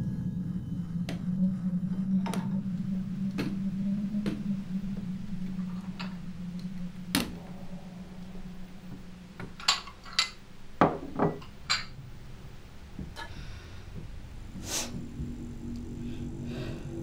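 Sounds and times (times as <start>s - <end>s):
low steady hum: 0.0s - 17.0s
plates and bowls clinking: 9.4s - 12.0s.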